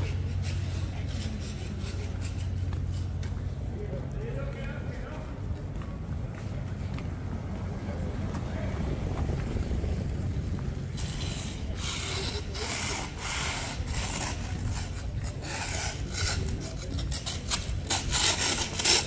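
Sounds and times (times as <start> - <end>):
rasping scraping strokes: 0.0 - 3.6, 10.9 - 19.0
low rumble: 0.0 - 18.2.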